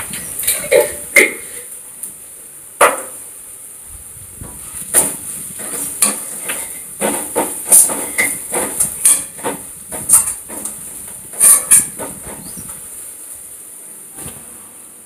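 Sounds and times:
steel spatula scraping a pan: 4.9 - 12.6.

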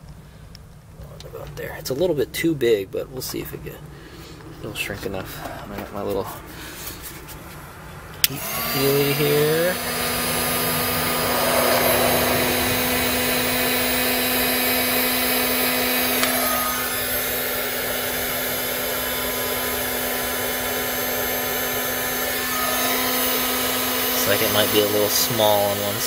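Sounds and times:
heat gun blowing air: 8.2 - 26.0.

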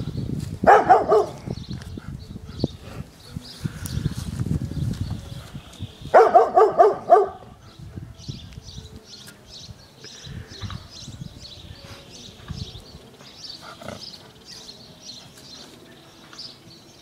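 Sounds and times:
dog barking sharply: 0.7 - 1.4, 6.2 - 7.4.

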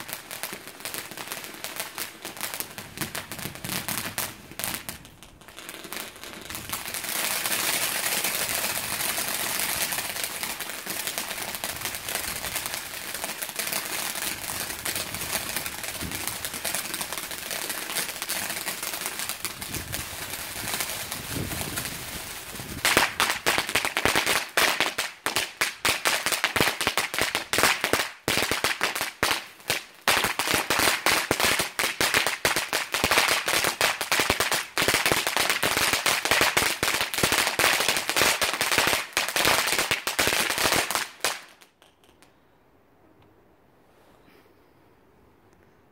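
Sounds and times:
firework fountain hissing: 0.0 - 26.5
firework crackling: 0.0 - 42.3.

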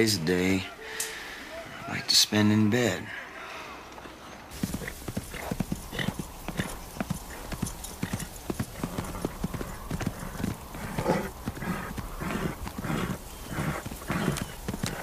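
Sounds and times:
horse hooves on dry dirt: 4.5 - 15.0.

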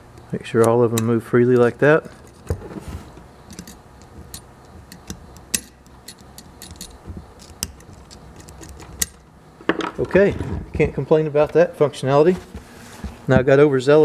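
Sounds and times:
small metallic clicks: 3.4 - 9.3.

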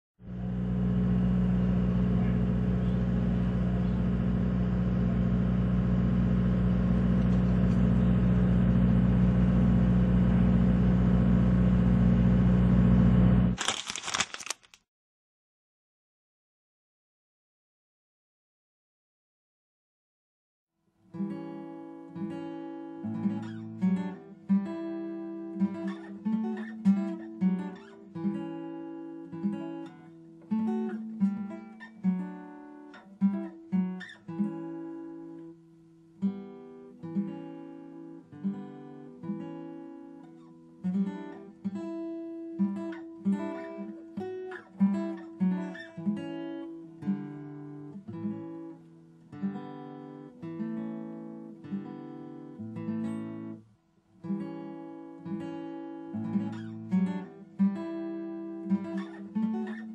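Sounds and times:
acoustic guitar plucking: 21.2 - 35.5, 54.2 - 59.9.

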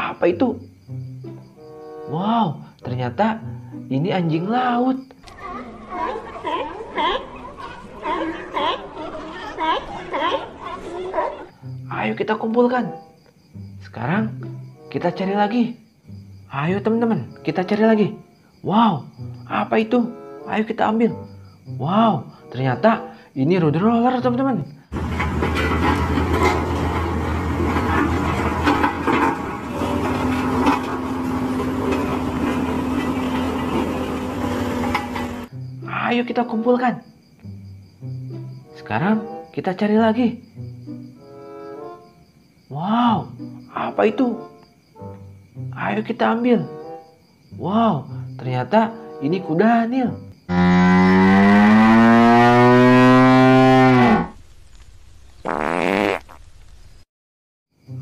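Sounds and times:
road roller diesel engine: 24.9 - 35.5
hippopotamus bellowing: 50.5 - 54.4
crackles over gravel: 54.3 - 55.5.

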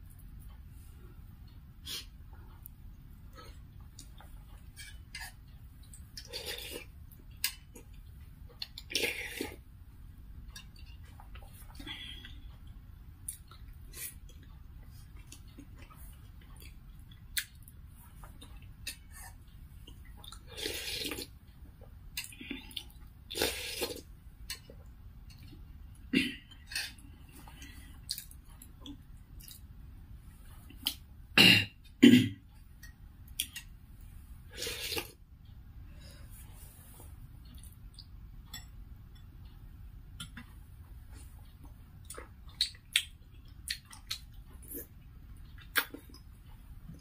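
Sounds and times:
slurping soup: 6.2 - 6.9, 8.8 - 9.6, 20.4 - 21.4, 23.3 - 24.1, 34.6 - 35.2
chewing: 10.5 - 25.7, 26.5 - 29.7, 41.1 - 47.0.

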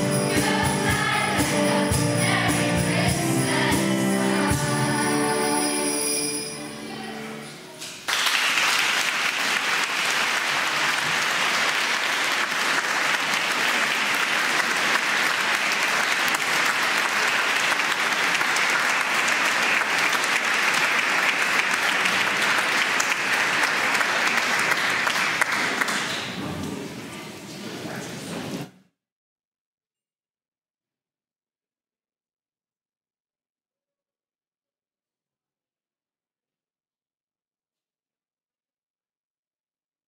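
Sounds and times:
congregation applauding: 7.8 - 26.7.

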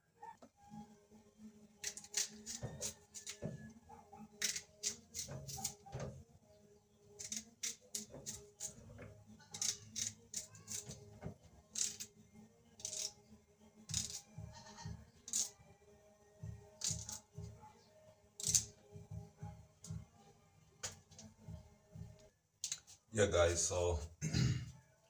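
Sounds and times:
knife cutting garlic: 1.8 - 3.4, 4.3 - 5.9, 7.2 - 8.8, 9.4 - 11.0, 11.7 - 12.2, 12.8 - 13.2, 13.9 - 14.3, 18.4 - 18.7.

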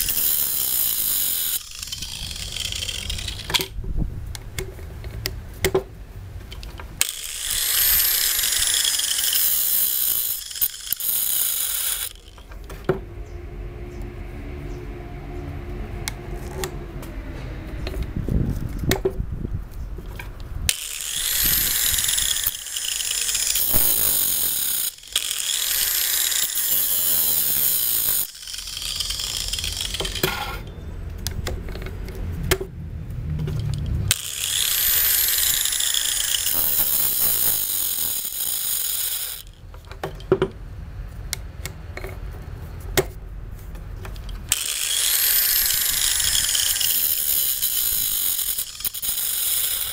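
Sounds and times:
angle grinder whining: 0.0 - 3.8, 7.0 - 17.2, 20.7 - 31.8, 33.4 - 39.6, 44.5 - 49.9
chainsaw chain clicking: 0.0 - 3.8, 6.5 - 12.9, 20.7 - 30.7, 33.4 - 40.3, 44.1 - 49.9.

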